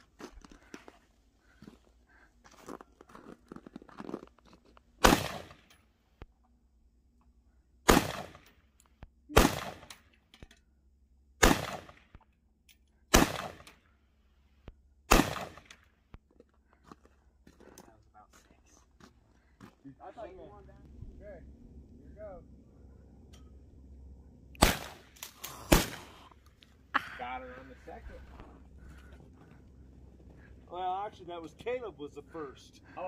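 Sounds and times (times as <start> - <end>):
gunshots with echo: 9.4 - 9.9, 24.6 - 25.1.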